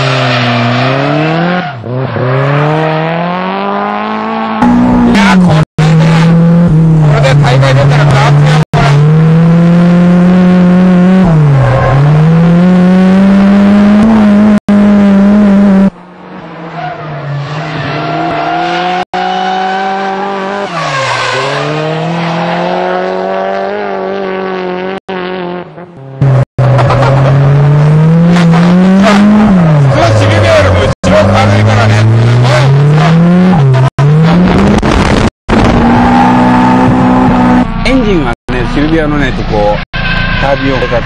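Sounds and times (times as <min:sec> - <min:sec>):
turbocharged engine revving hard: 0:00.0 - 0:15.9, 0:18.0 - 0:38.0.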